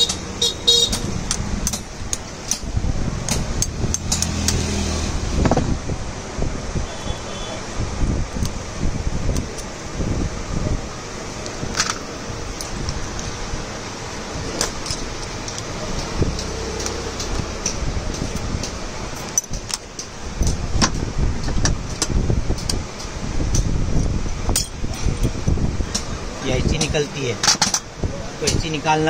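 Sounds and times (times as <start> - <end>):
small metallic clicks and clinks: 24.5 - 26.1.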